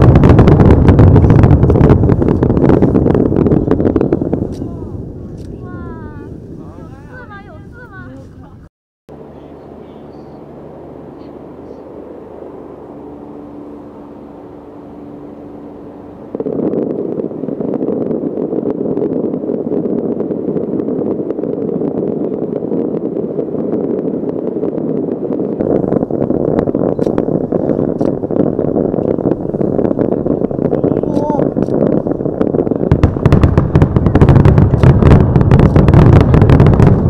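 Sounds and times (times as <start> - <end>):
low hum: 0.0 - 6.9, 9.1 - 37.0
distant fireworks bangs and crackling: 0.0 - 7.1, 11.1 - 37.0
faint held tones: 9.1 - 17.8.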